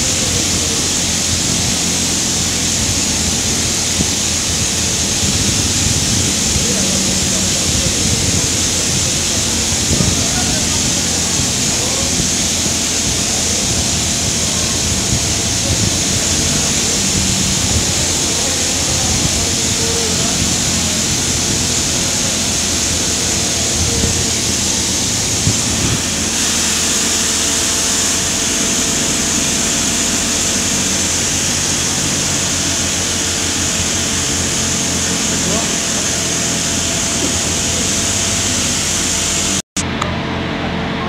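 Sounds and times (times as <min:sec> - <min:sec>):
drilling machinery hiss: 0:00.0 - 0:39.7
low machinery hum: 0:00.0 - 0:41.0.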